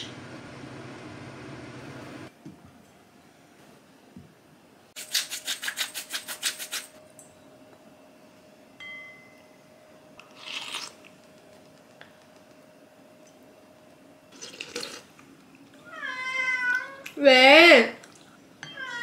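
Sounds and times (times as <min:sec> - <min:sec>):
pepper mill grinding: 0:05.0 - 0:06.9.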